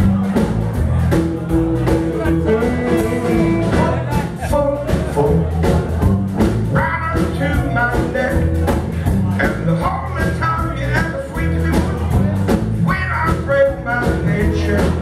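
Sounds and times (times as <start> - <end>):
drums: 0.0 - 15.0
electric guitar: 0.0 - 15.0
man singing: 2.3 - 5.6, 6.4 - 15.0.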